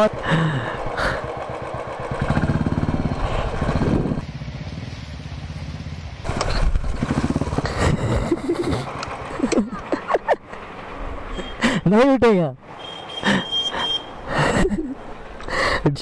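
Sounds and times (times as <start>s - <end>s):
motorcycle engine running: 0.0s - 9.8s.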